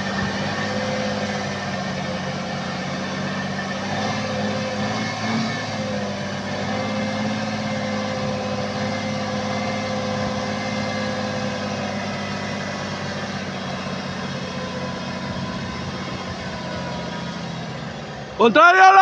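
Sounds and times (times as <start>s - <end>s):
truck diesel engine running: 0.0s - 19.0s.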